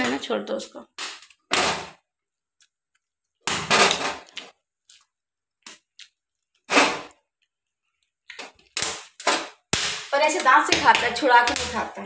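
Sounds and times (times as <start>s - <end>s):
corn kernels popping: 8.2s - 12.0s.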